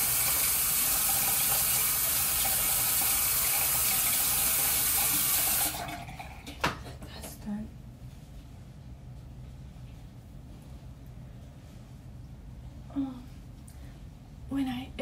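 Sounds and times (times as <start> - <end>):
tap water running: 0.0 - 7.0.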